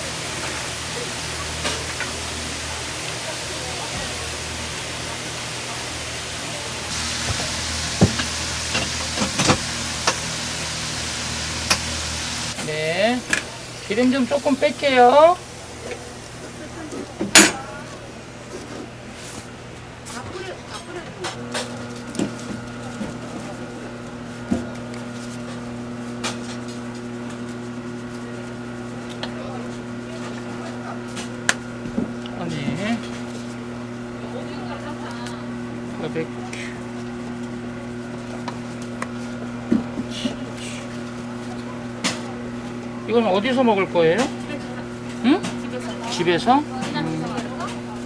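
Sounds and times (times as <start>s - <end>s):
potatoes deep-frying in oil: 0.0s - 15.6s
machine hum: 0.0s - 17.1s, 20.4s - 48.0s.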